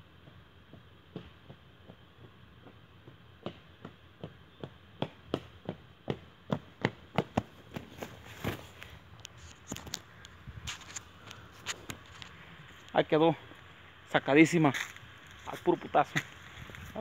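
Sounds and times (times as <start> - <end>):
footsteps on dirt and stone: 6.1 - 13.8, 14.4 - 17.0.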